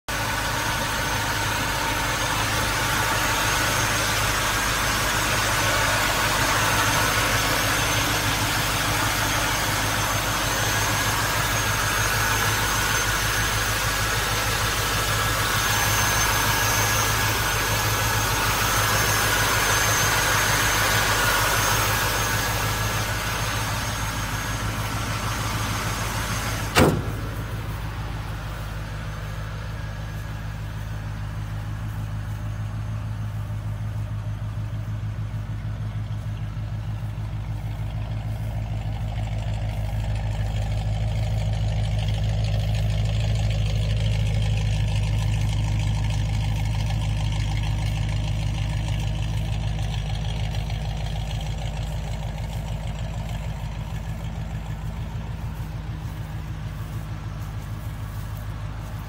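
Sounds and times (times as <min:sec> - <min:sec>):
car engine idling: 0:00.0 - 0:59.0
sharp knock: 0:26.7 - 0:27.9.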